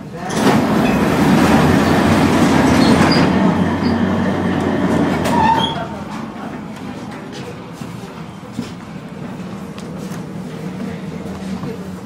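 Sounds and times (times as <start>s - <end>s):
tram wheels rumbling on rails: 0.0s - 12.0s
wheel squeals: 2.7s - 4.1s, 5.2s - 5.9s.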